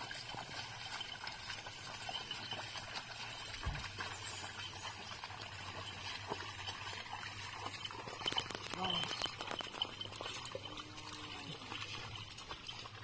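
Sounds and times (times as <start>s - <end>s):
hooves sloshing through mud: 0.0s - 13.0s
low thump: 3.6s - 3.9s.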